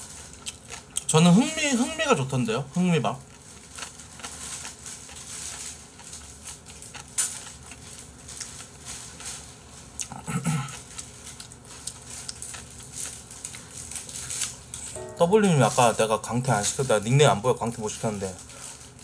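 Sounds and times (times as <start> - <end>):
person chewing with mouth clicks: 0.3 - 1.1, 3.3 - 8.8, 10.0 - 13.8.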